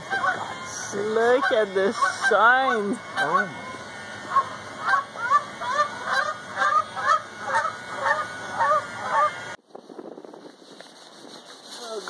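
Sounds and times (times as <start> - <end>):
bird calling: 0.0 - 9.4.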